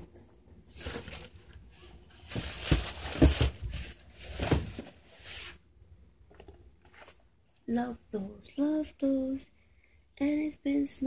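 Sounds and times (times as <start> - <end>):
rustling handling noise: 0.6 - 5.6.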